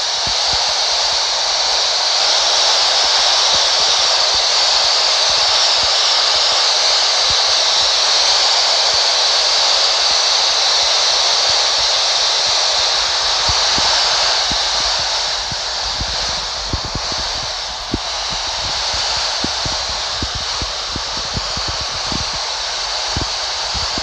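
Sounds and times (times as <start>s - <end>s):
radio static hiss: 0.0s - 24.0s
faint radio crackles: 12.7s - 24.0s.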